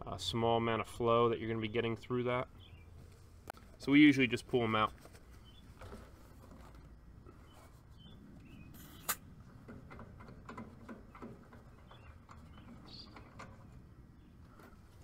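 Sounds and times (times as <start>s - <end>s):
birds chirping: 1.4s - 3.2s, 5.2s - 6.0s, 7.2s - 9.2s, 10.9s - 15.0s.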